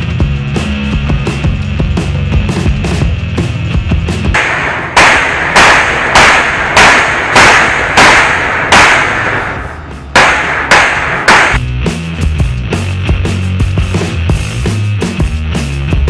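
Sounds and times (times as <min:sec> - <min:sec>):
hammer striking steel: 0:04.4 - 0:11.6.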